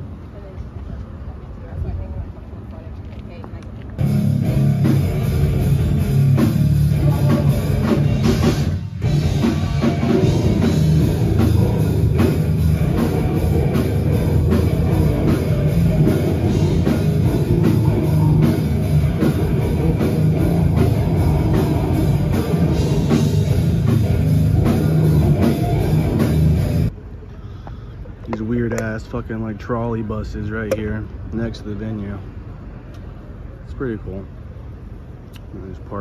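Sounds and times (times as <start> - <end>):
distorted guitars: 4.0 - 26.9
heavy metal band playing: 4.0 - 26.9
fast drum beat: 4.5 - 26.9.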